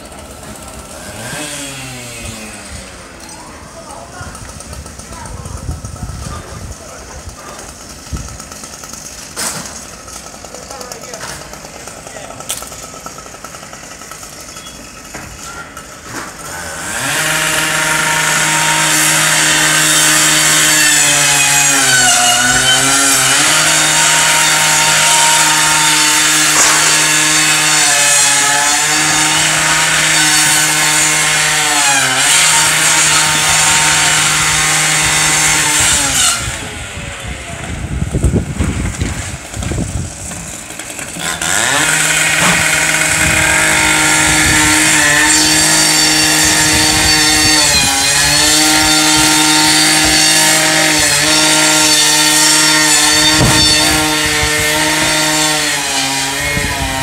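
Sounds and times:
power saw running: 0:00.0 - 0:57.0
low thumps: 0:53.1 - 0:55.3.

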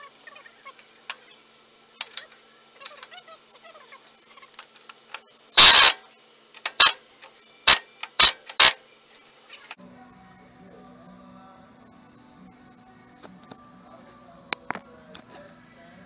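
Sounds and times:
impact wrench hammering: 0:05.6 - 0:06.0, 0:06.6 - 0:07.0, 0:07.7 - 0:08.8.

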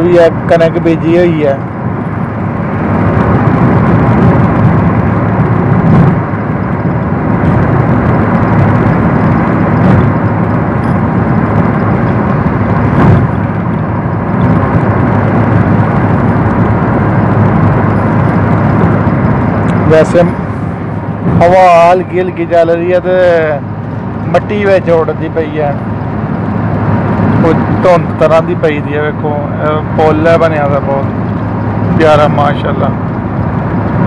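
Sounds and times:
car road and wind noise: 0:00.0 - 0:34.0.

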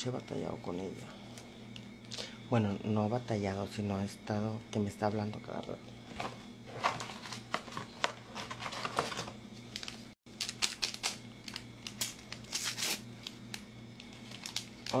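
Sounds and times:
faint steady hum: 0:00.0 - 0:15.0
plastic rustling and crinkling: 0:06.1 - 0:13.0, 0:14.0 - 0:15.0.

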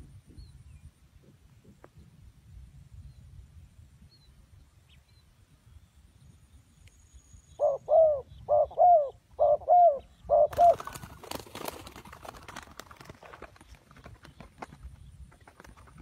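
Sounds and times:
dove cooing: 0:07.6 - 0:11.6.

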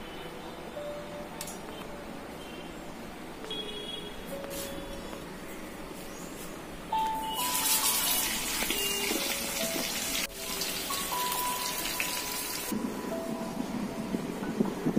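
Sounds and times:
background music with held notes: 0:04.2 - 0:14.9
fish sizzling in oil: 0:07.3 - 0:12.7.

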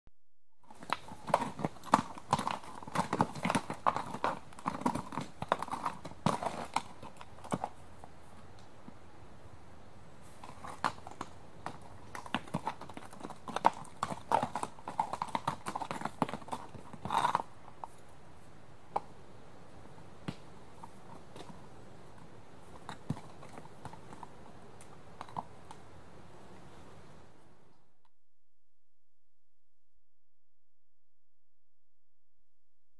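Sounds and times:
horse hooves stamping: 0:00.6 - 0:09.0, 0:10.2 - 0:18.3, 0:20.2 - 0:25.8.

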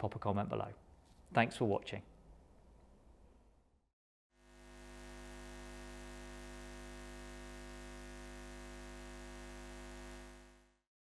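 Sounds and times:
hum of held tones: 0:04.4 - 0:10.8.

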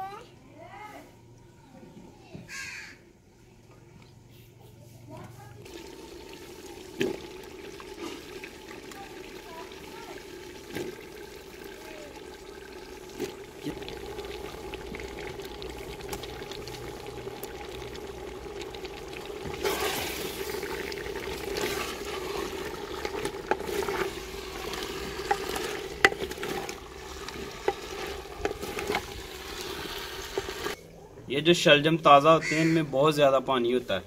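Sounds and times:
food sizzling: 0:05.6 - 0:30.8
spatula scraping clay pot: 0:21.2 - 0:30.8
spatula knocking clay pot: 0:24.8 - 0:26.8.

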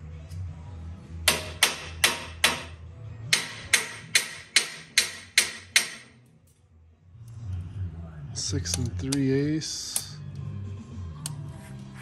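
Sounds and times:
hammer striking steel tube: 0:01.2 - 0:06.2.

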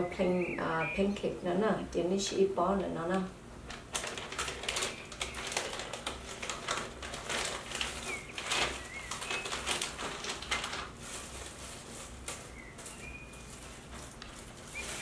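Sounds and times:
plastic packaging crinkling: 0:03.6 - 0:15.0.

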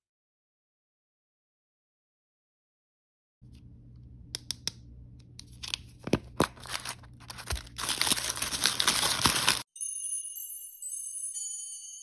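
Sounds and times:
low steady hum: 0:03.4 - 0:09.6
plastic wrapper crinkling: 0:05.4 - 0:09.7.

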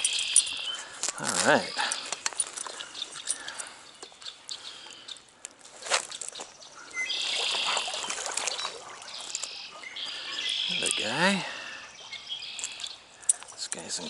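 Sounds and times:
water splashing and trickling: 0:05.7 - 0:14.0
sharp splash: 0:07.2 - 0:09.3.

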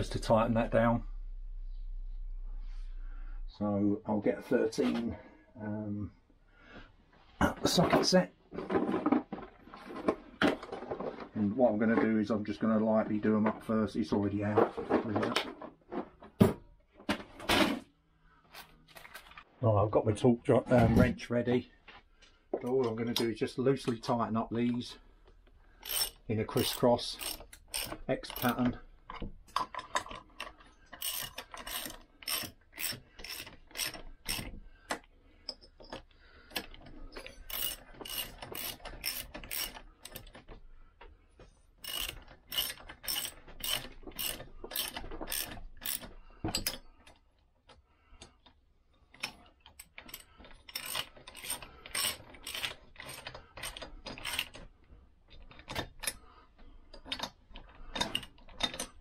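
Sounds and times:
socket ratchet clicking: 0:25.8 - 0:28.6, 0:31.0 - 0:34.5, 0:37.5 - 0:40.3, 0:41.8 - 0:46.8, 0:49.2 - 0:54.6.

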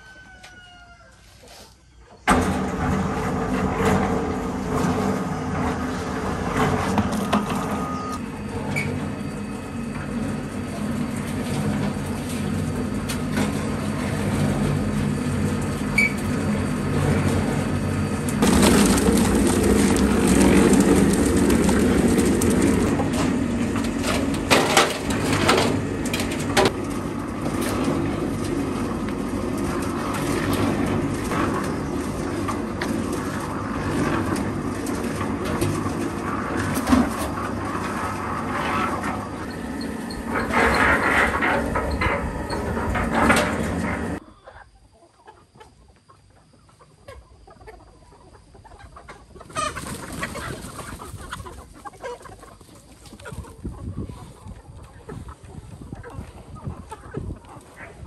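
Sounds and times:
concrete mixer humming and rattling: 0:02.2 - 0:44.2, 0:49.0 - 0:54.0
grain pouring into wheelbarrow: 0:10.3 - 0:39.4.

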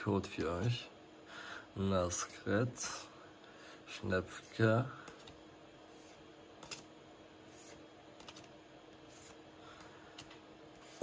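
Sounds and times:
cards swishing against each other: 0:05.0 - 0:09.4, 0:10.2 - 0:11.0.

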